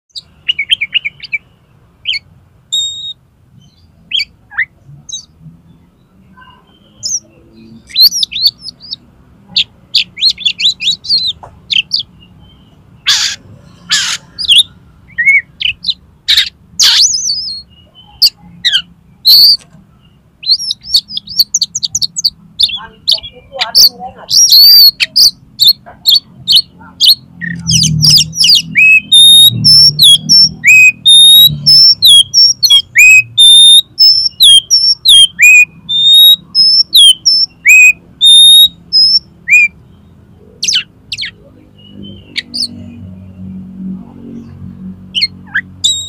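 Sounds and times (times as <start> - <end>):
bird singing whistled notes: 0.1 - 13.3, 13.9 - 43.0, 45.2 - 46.0
short harsh bird notes: 10.0 - 19.6, 27.4 - 39.7.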